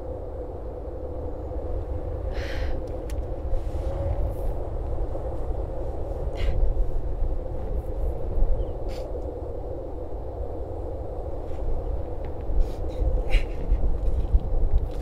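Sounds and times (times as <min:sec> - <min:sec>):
faint constant hum: 0:00.0 - 0:15.0
wind rumbling: 0:00.0 - 0:15.0
woman breathing sharply: 0:02.3 - 0:02.9.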